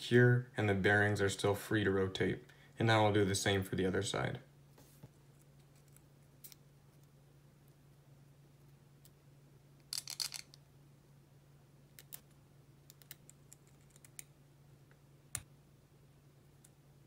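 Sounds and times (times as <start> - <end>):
small metal parts clicking: 9.8 - 10.6.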